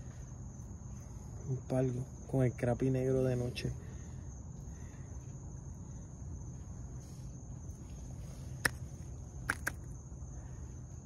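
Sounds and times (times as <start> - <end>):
night insects chirring: 0.0 - 11.0
sharp clicks: 9.4 - 9.9.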